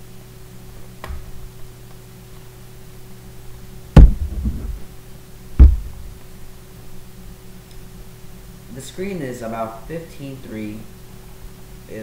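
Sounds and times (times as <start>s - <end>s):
low hum: 3.0s - 7.3s
loud thumps: 3.9s - 4.9s, 5.6s - 6.2s.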